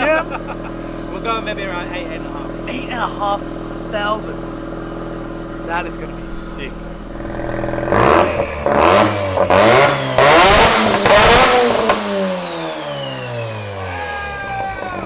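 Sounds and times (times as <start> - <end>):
rotary engine revving: 0.3 - 13.9
high turbo whistle: 5.0 - 14.3.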